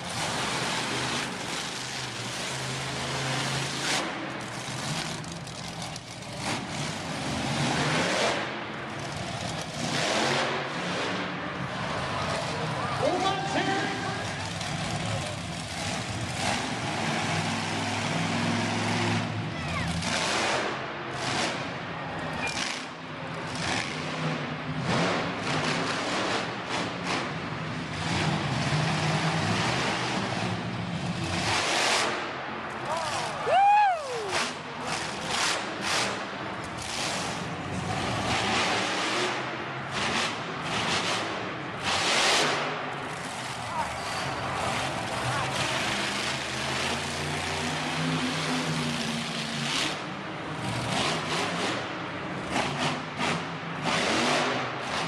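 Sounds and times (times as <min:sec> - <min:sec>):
arena crowd noise: 0:00.0 - 0:55.0
monster truck engines rumbling: 0:00.0 - 0:55.0
high rising and falling cry: 0:33.3 - 0:34.6.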